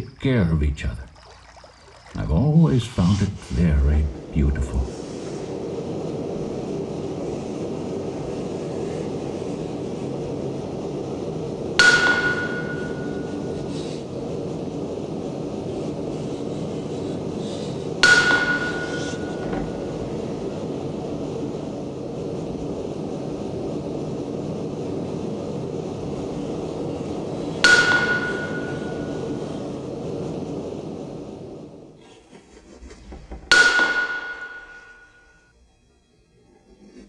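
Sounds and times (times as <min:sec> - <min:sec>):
hammer ringing on metal: 0:11.8 - 0:13.3, 0:18.0 - 0:19.4, 0:27.6 - 0:29.1, 0:33.5 - 0:35.1.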